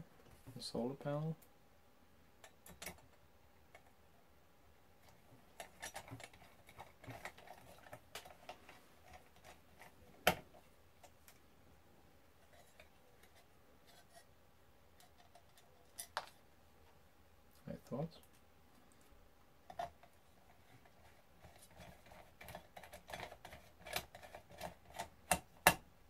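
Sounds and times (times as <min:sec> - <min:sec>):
screwdriver clicks and scrapes: 0:05.0 - 0:10.4, 0:21.4 - 0:25.8.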